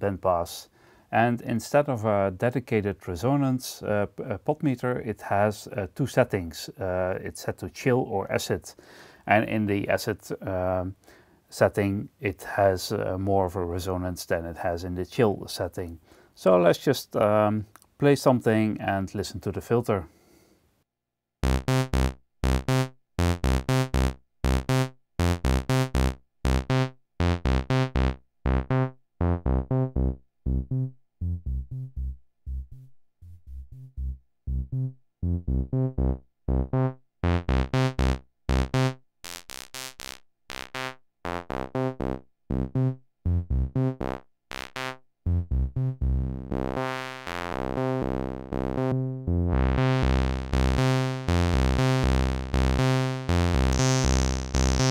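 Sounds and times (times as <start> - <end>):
synthesizer low note sequence: 21.4 - 54.9.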